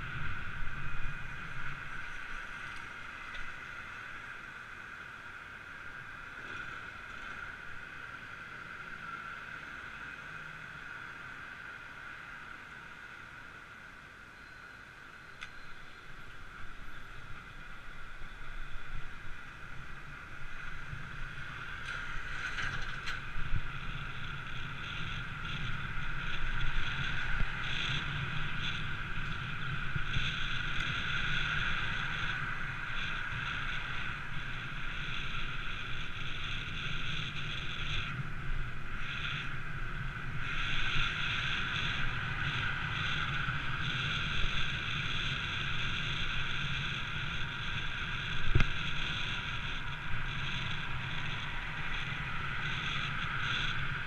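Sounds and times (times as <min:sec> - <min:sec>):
bicycle tyre road noise: 0:00.0 - 0:54.0
wind buffeting microphone: 0:18.0 - 0:54.0.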